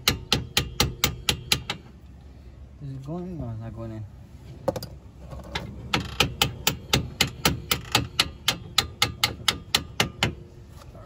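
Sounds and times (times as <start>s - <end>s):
hand tool striking metal bolt: 0.0s - 1.8s, 5.9s - 10.4s.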